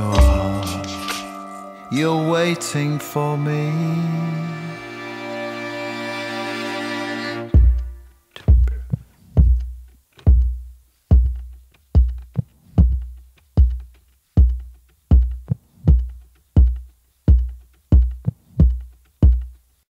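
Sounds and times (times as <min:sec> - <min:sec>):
drum machine beat: 0:00.0 - 0:02.8, 0:07.5 - 0:19.8.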